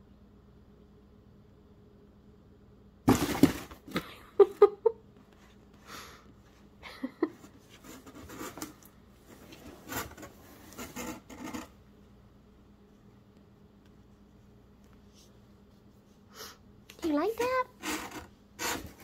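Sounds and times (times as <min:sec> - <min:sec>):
cardboard box crashing and rustling: 0:03.1 - 0:04.0
scraping and crinkling inside box: 0:03.1 - 0:04.0, 0:07.4 - 0:11.8, 0:17.3 - 0:19.0.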